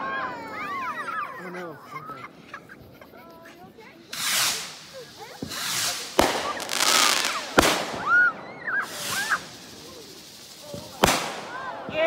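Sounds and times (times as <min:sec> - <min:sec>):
fireworks hissing and crackling: 0:00.5 - 0:12.0
fireworks bangs: 0:04.0 - 0:12.0.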